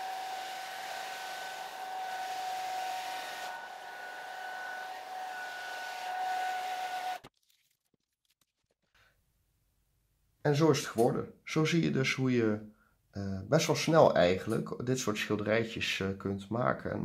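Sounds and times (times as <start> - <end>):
hair dryer blowing: 0.0 - 7.2.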